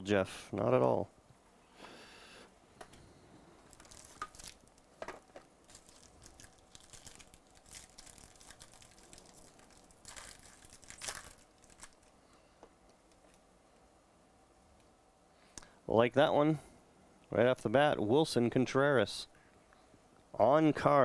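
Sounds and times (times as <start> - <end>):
cardboard and wrapper rustling: 3.6 - 12.1.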